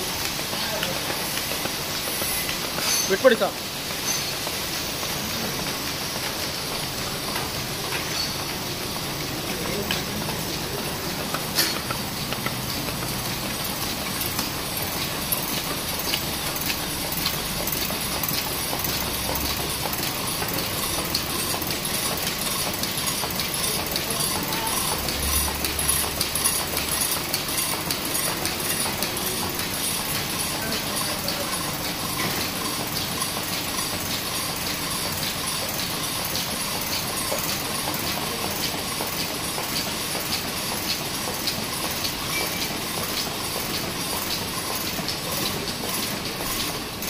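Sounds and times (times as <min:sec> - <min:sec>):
box folding machine clattering: 0:00.0 - 0:47.0.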